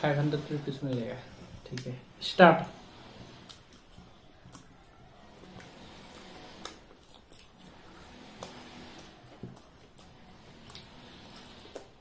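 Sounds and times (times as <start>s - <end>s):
food being bitten crunching: 3.3s - 12.0s.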